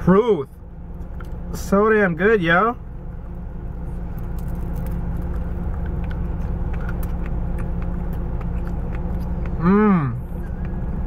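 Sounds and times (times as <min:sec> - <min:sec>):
car engine idling: 0:00.0 - 0:11.0
chewing clicks: 0:04.2 - 0:09.6.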